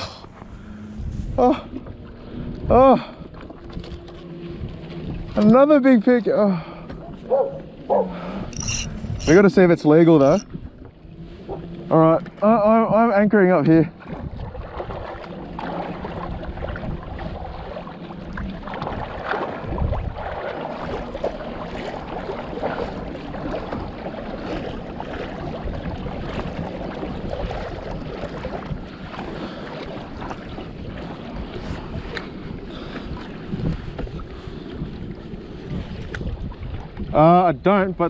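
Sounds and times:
water slapping against hull: 0.0s - 38.0s
wind buffeting microphone: 0.3s - 11.9s, 12.6s - 38.0s.

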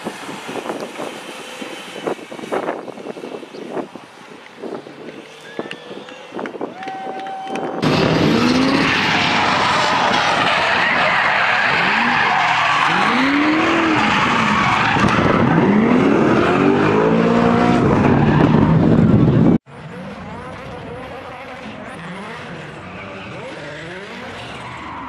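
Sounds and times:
car engine revving: 7.8s - 25.0s
tyre squeal and skidding: 8.2s - 18.8s, 21.7s - 25.0s.

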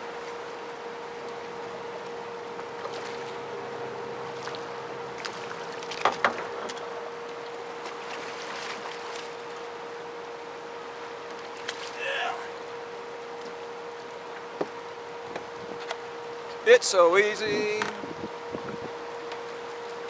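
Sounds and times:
thin steady hum: 0.0s - 20.0s
turbulent water rushing: 11.9s - 12.6s.

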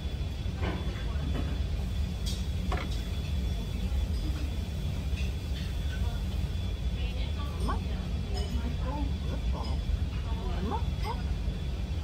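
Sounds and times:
low room rumble: 0.0s - 12.0s.

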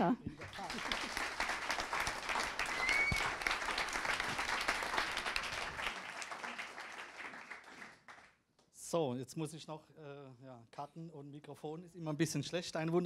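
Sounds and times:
audience applauding: 0.3s - 8.4s.

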